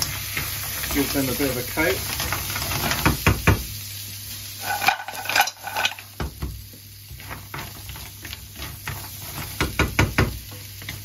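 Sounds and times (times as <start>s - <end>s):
light sizzle: 0.0s - 11.0s
shells clattering in a pan: 4.6s - 6.2s.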